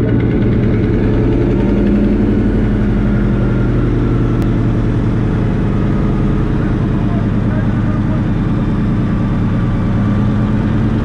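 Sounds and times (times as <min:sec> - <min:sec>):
radial engine and propeller running: 0:00.0 - 0:11.0.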